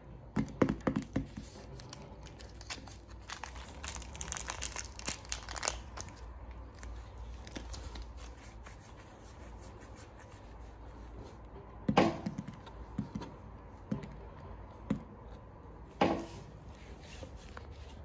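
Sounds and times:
plastic wrapper crinkling and tearing: 1.5s - 8.6s.

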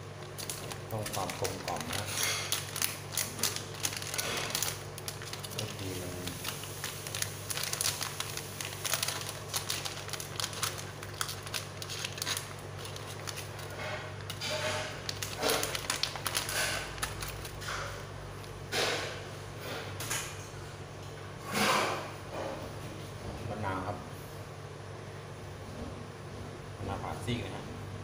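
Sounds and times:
foil sachet crinkling: 0.0s - 18.5s.

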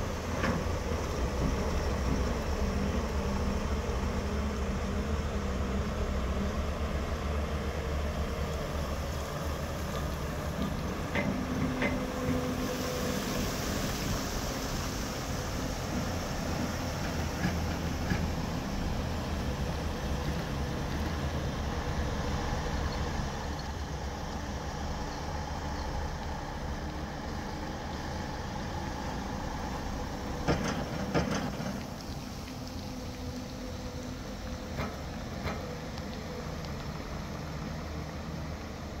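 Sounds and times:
excavator diesel engine droning: 0.0s - 39.0s.

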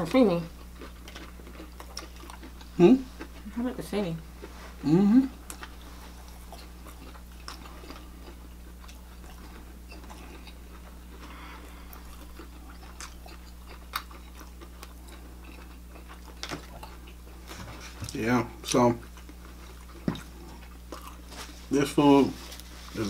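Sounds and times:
steady low hum: 0.0s - 23.0s
person chewing food: 0.5s - 3.6s, 4.3s - 21.7s.

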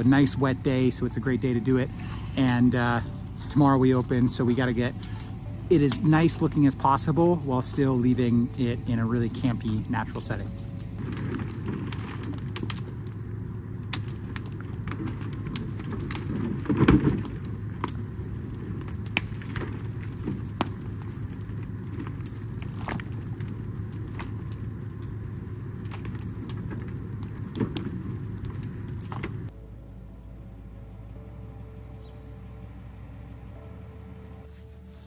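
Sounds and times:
fire crackling and popping: 0.0s - 35.0s
steady low hum: 0.0s - 35.0s
branches dragged and thrown: 9.4s - 29.5s.

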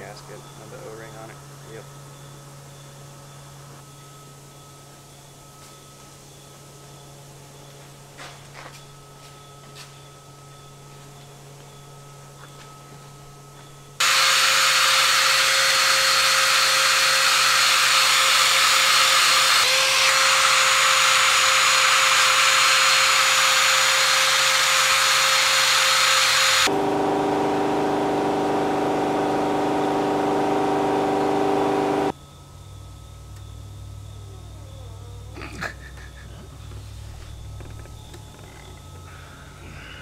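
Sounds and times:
power tool hissing whine: 14.0s - 32.2s.

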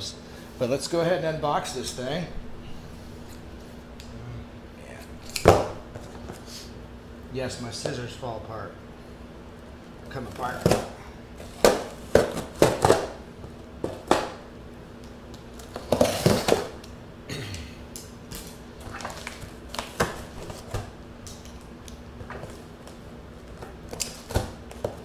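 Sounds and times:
scissors cutting packing tape: 23.9s - 24.8s.

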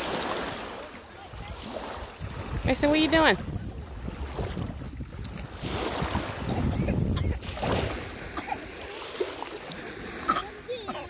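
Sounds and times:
small waves washing: 0.0s - 11.0s
wind gusting on microphone: 1.2s - 8.8s.

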